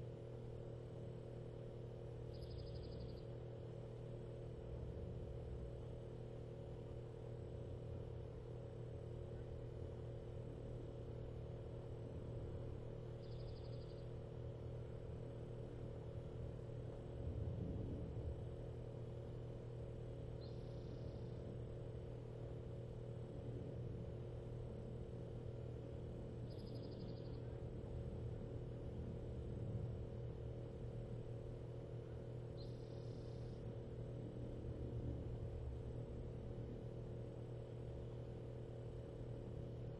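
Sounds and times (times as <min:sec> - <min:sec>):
low hum with steady tones: 0:00.0 - 0:39.9
high pulsing chirp: 0:02.3 - 0:03.2, 0:13.2 - 0:14.1, 0:26.4 - 0:27.4.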